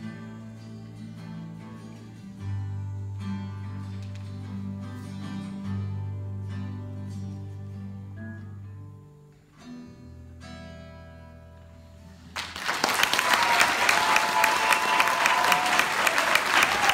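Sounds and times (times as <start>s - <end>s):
acoustic guitars ringing: 0.0s - 12.4s
audience applause: 12.4s - 16.9s.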